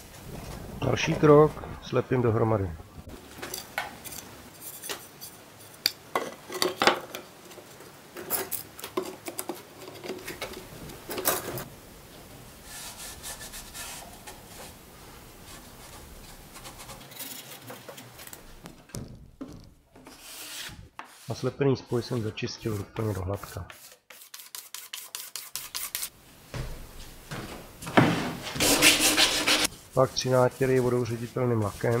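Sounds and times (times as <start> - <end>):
scraping and rubbing: 12.6 - 18.8, 19.5 - 26.1, 28.1 - 32.0.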